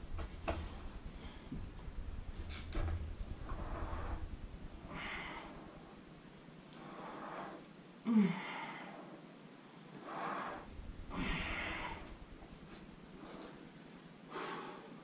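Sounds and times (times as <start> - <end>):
man breathing hard: 4.8 - 6.0, 6.8 - 9.3, 10.0 - 12.3, 13.1 - 15.0.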